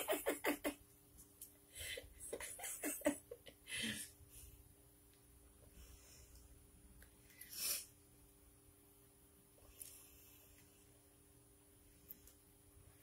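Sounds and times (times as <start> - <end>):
woman laughing: 0.0 - 0.8, 1.8 - 4.1.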